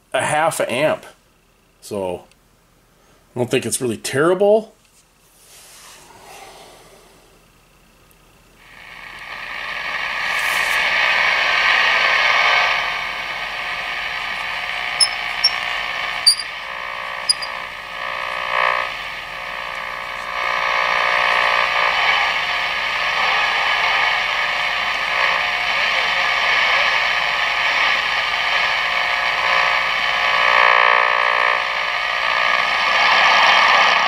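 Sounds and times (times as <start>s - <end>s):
radio static hiss: 8.6s - 34.0s
sharp clicks: 15.0s - 15.6s, 16.3s - 16.5s, 17.3s - 17.5s.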